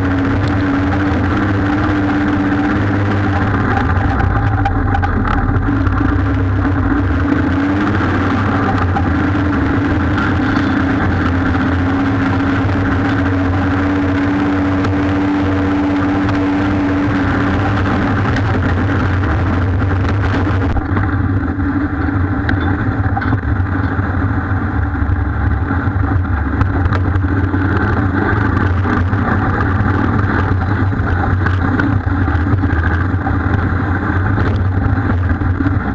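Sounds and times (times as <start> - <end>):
off-road vehicle engine running: 0.0 - 35.9
knocks and rattles: 0.2 - 6.3, 22.4 - 24.0.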